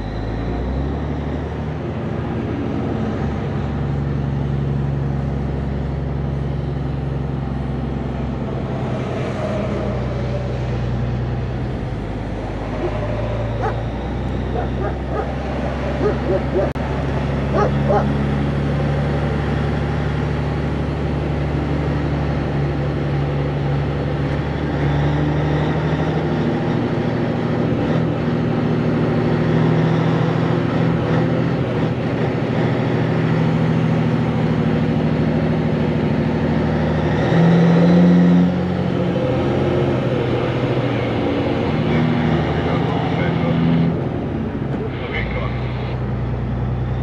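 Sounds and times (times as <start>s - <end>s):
truck diesel engine running: 0.0s - 37.0s.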